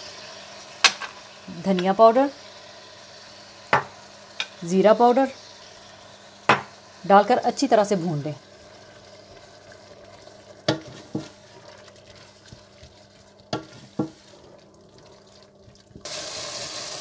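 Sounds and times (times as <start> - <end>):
loud frying sizzle: 0.0 - 17.0
sauce sizzling in oil: 0.0 - 17.0
spoon knocking against pot: 3.7 - 4.5, 6.5 - 6.7, 10.7 - 11.3, 13.5 - 14.2.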